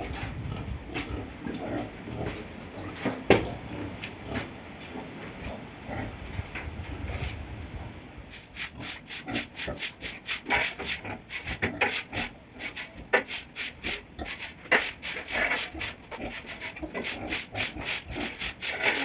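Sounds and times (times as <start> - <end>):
broom sweeping concrete floor: 8.3 - 19.0.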